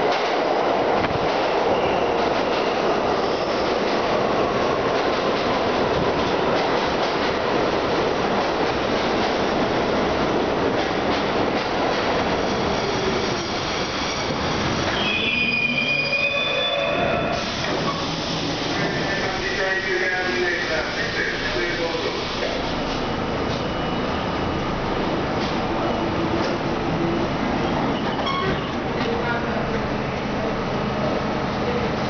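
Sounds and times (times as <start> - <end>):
subway train wheels rumbling: 0.0 - 32.0
train brakes squealing: 12.4 - 19.0, 27.7 - 28.8.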